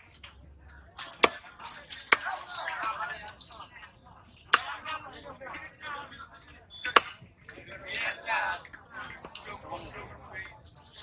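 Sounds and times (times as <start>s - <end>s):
background voices: 7.4s - 11.0s.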